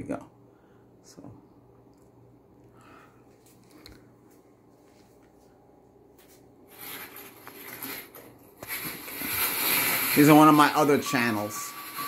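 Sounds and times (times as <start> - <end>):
faint room hum: 0.0 - 12.0
video audio through tv speakers: 3.5 - 12.0.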